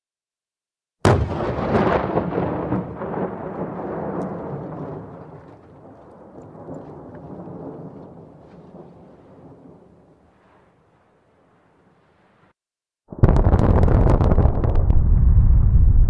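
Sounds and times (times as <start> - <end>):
explosion blast with rumble: 1.0 - 5.5, 13.1 - 16.0
crackles: 1.2 - 16.0.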